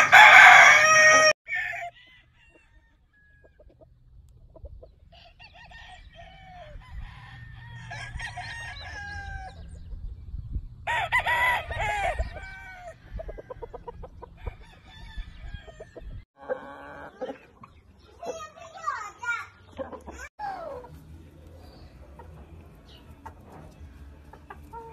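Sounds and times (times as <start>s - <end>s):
roosters crowing: 0.0s - 3.7s, 5.1s - 9.8s, 10.8s - 17.2s, 20.1s - 24.9s.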